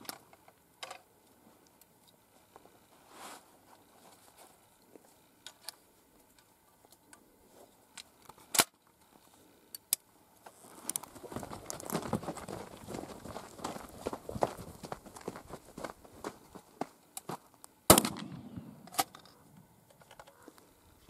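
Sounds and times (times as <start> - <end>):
gun handling clicks: 7.9 - 8.8, 17.9 - 20.4
boots running on gravelly dirt: 10.5 - 17.5
revolver gunshot: 17.9 - 18.8.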